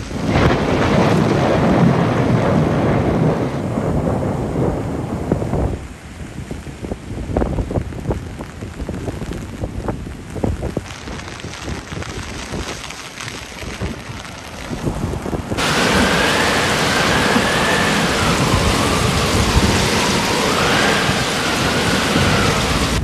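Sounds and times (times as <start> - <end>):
wind gusting on microphone: 0.0 - 23.0
waves breaking on pebbles: 10.4 - 23.0.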